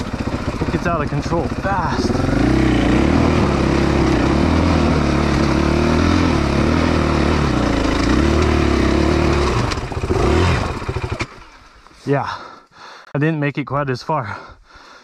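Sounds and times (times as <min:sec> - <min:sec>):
motorcycle engine revving: 0:00.0 - 0:11.7.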